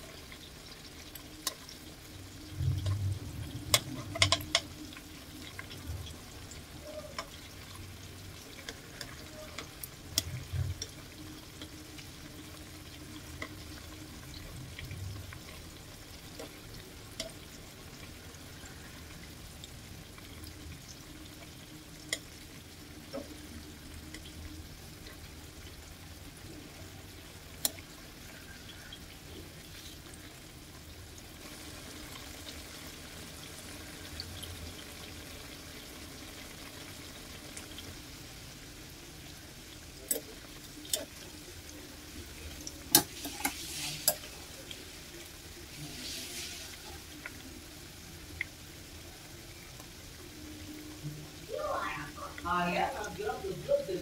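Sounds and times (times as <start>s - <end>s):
frying oil sizzling: 0.0s - 54.0s
metal utensil clicking on pan: 3.7s - 4.8s, 40.1s - 40.3s, 40.9s - 41.1s, 42.9s - 44.3s.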